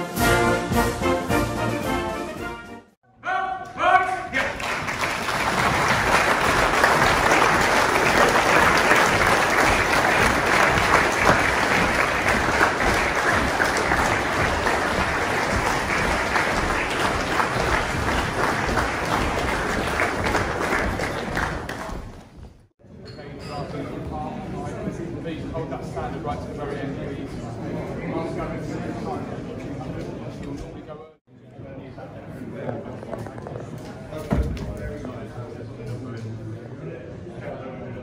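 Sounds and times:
audience applauding: 4.4 - 22.3.

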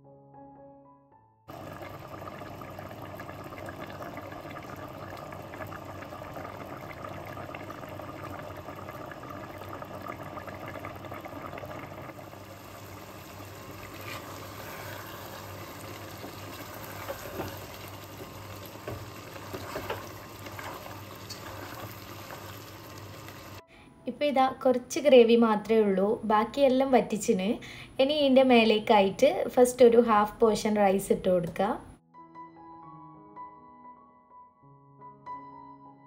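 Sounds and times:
stock boiling in a pot: 1.5 - 23.6.

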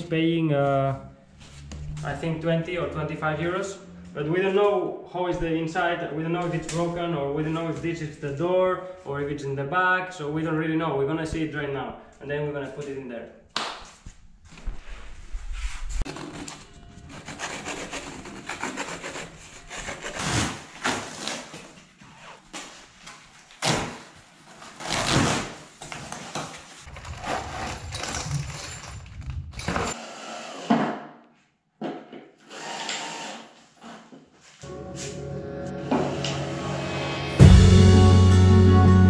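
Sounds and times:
cardboard packaging rustling and tearing: 16.1 - 28.2
cordless drill running: 32.5 - 33.5.

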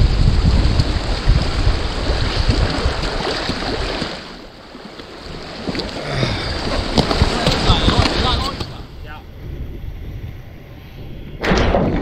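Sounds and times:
sea washing on rocks: 0.0 - 9.0
wind buffeting microphone: 0.0 - 12.0.

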